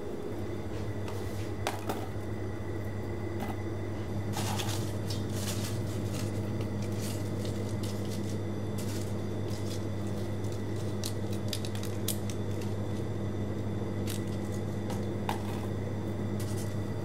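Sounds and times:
dried leaves rustling and crackling: 4.3s - 13.2s.

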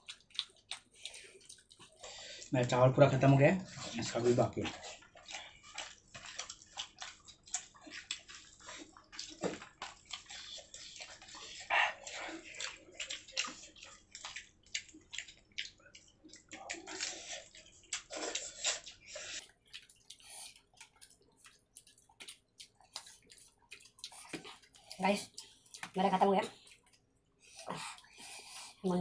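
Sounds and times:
lip-smacks: 0.0s - 2.2s
chewing clicks: 0.0s - 2.8s, 3.7s - 28.7s
wet eating squelches: 0.0s - 29.0s.

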